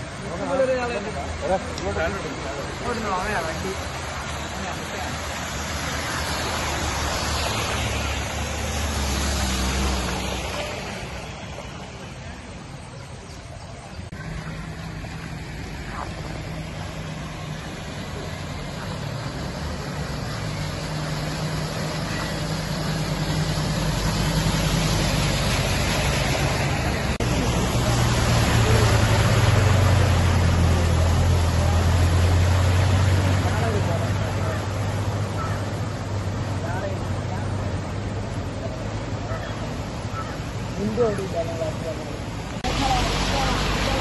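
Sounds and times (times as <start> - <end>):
tyres washing through water: 0.0 - 44.0
vehicle engine hum: 0.0 - 44.0.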